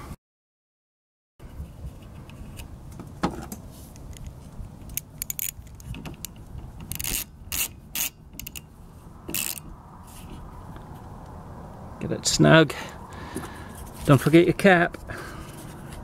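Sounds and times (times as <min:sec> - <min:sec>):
socket ratchet clicking: 0:04.9 - 0:08.7, 0:09.3 - 0:09.6.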